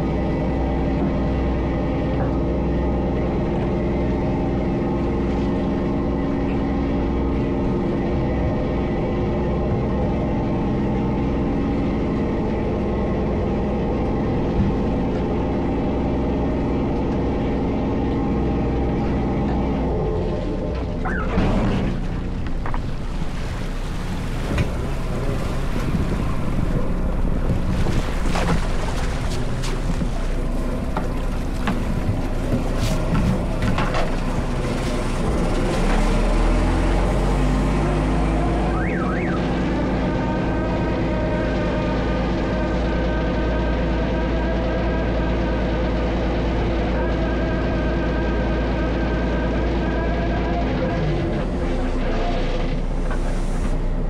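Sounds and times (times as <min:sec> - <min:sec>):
boat engine and machinery drone: 0:00.0 - 0:54.0
water splashing along hull: 0:00.0 - 0:54.0
wind on microphone: 0:22.8 - 0:34.6.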